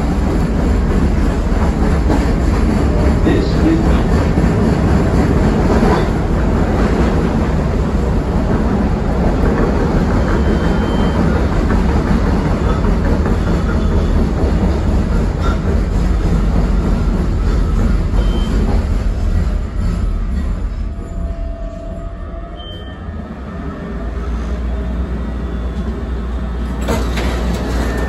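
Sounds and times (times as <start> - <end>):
wheels clickety-clack: 0.0 - 7.4, 8.4 - 19.6
train wheels rumbling on rail: 0.0 - 28.0.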